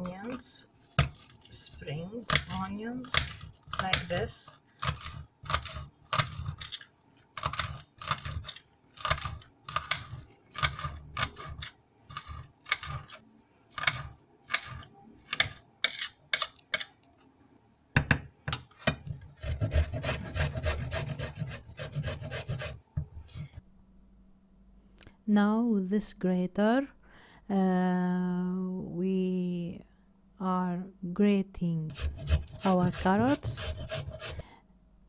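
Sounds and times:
carrot scraping on metal grater: 1.0 - 16.9, 19.4 - 22.8, 31.9 - 34.4.

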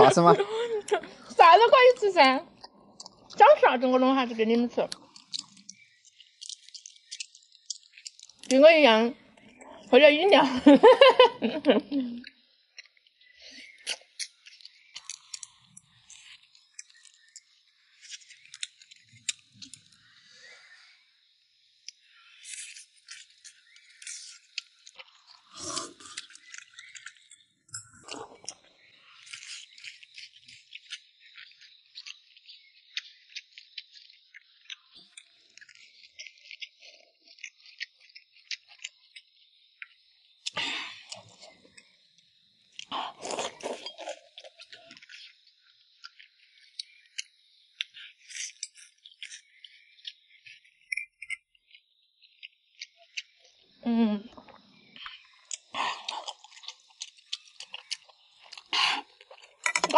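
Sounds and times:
person chewing: 2.5 - 3.4, 4.9 - 8.5, 12.2 - 20.2, 22.4 - 39.2, 39.8 - 42.0, 42.7 - 45.4, 54.4 - 59.9
tableware clicking and clinking: 59.6 - 59.9.

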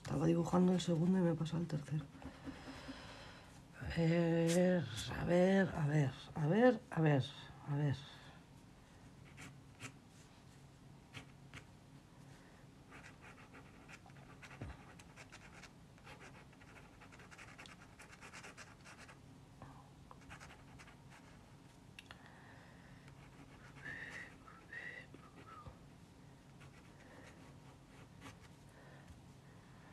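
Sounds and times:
pencil scratching on paper: 12.9 - 19.2, 20.2 - 21.4.

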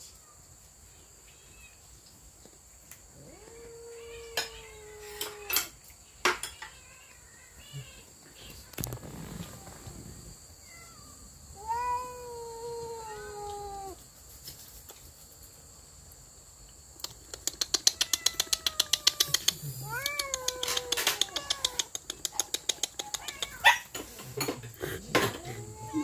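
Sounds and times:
cat yowling: 3.2 - 5.8, 10.6 - 14.0, 17.9 - 21.9, 23.0 - 24.0, 24.9 - 26.0.

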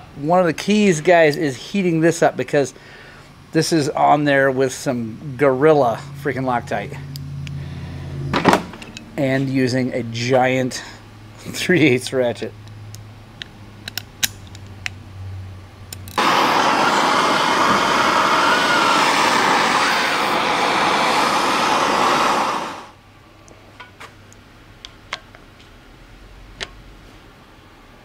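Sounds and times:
heating tool rushing hiss: 16.2 - 23.0.

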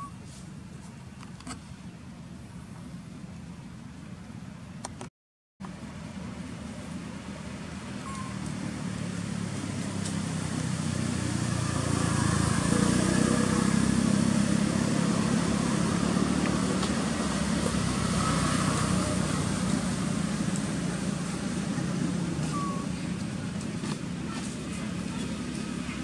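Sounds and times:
vehicle engine running: 5.7 - 26.0.

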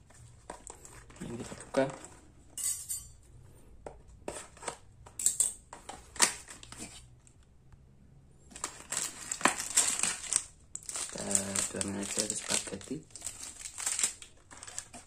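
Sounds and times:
cardboard rustling: 0.0 - 2.3, 8.5 - 15.0.

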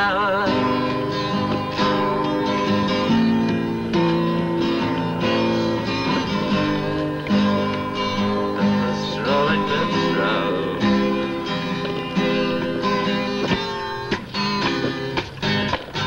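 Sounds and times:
acoustic guitar strumming: 0.0 - 16.0.

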